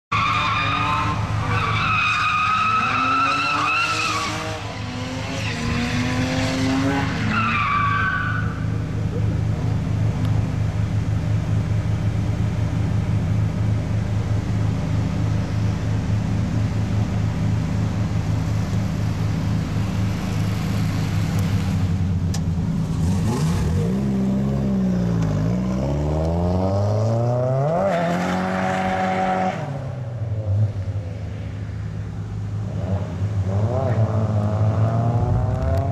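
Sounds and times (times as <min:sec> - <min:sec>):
car engine revving: 0:02.6 - 0:07.8, 0:18.5 - 0:30.8, 0:32.6 - 0:35.9.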